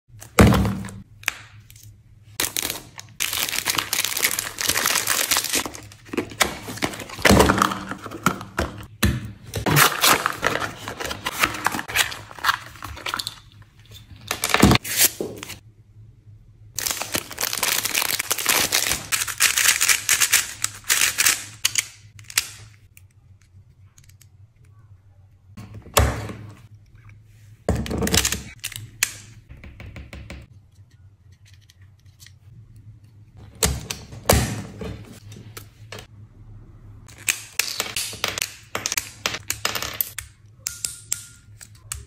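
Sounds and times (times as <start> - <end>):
packaging tearing and crinkling: 2.4 - 8.0, 9.7 - 13.2, 16.8 - 21.6.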